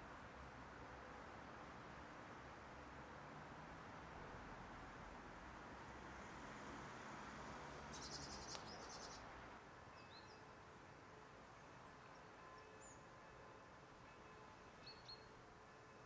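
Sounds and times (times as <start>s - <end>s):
thin songbird chirps: 7.8s - 9.2s
songbird rattling trill: 7.9s - 9.2s.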